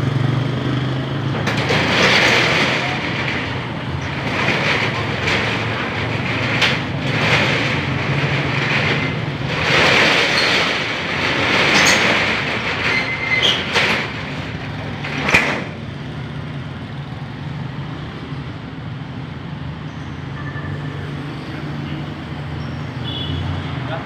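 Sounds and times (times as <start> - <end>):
steady background noise: 0.0 - 24.0
roll-up door rattling: 1.2 - 17.0.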